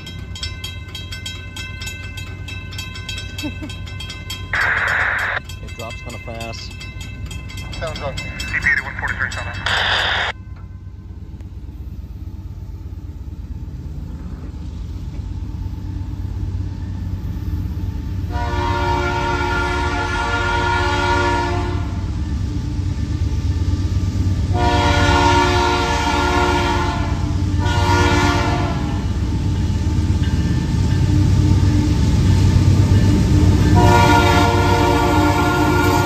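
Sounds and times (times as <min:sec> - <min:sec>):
train engine rumble: 0:00.0 - 0:36.0
train air horn blasts: 0:18.3 - 0:22.0, 0:24.5 - 0:29.1, 0:33.7 - 0:36.0.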